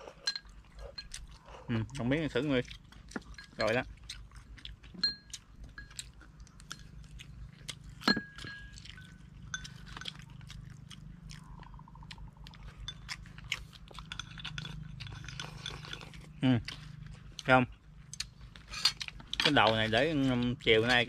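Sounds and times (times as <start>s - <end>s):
people chewing: 0.0s - 21.0s
chopsticks clicking on bowls: 12.8s - 16.3s, 18.2s - 21.0s.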